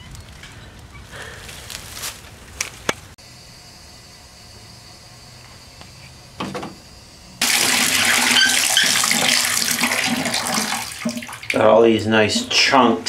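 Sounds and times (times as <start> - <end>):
water running from faucet: 7.4 - 12.6.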